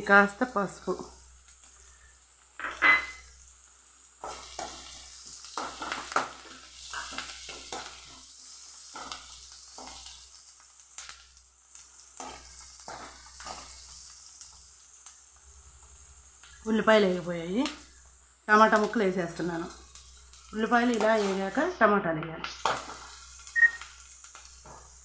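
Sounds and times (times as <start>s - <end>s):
light sizzle of frying: 0.0s - 25.0s
ladle scraping in a pan: 19.9s - 21.6s.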